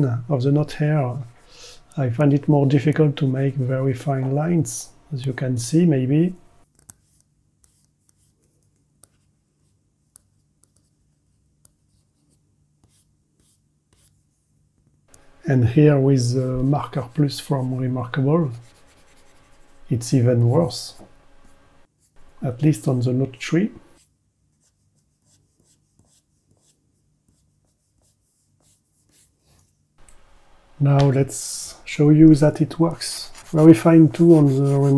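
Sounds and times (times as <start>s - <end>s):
low steady hum: 0.0s - 6.6s, 15.1s - 24.0s, 30.0s - 34.9s
stylus scratching on screen: 16.2s - 22.6s, 32.8s - 34.9s.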